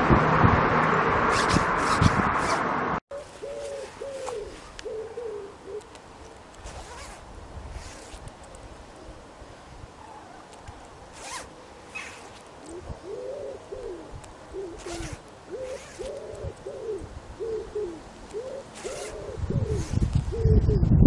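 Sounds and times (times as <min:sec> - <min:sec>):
zip rasping and clicking: 0:01.3 - 0:02.6, 0:05.8 - 0:08.6, 0:10.6 - 0:12.8, 0:14.8 - 0:16.4, 0:18.3 - 0:20.2
pigeon cooing: 0:03.1 - 0:05.9, 0:12.7 - 0:20.8.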